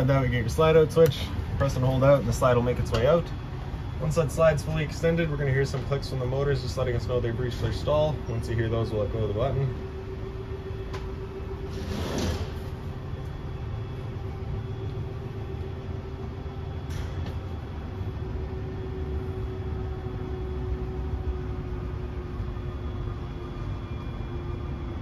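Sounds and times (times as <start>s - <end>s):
electric motors humming: 0.0s - 25.0s
rushing scrape: 11.7s - 12.6s.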